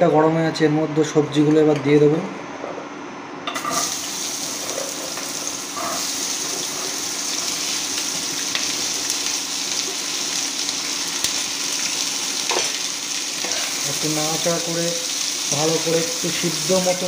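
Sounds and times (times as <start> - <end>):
vegetables sizzling in hot oil: 3.7 - 17.0.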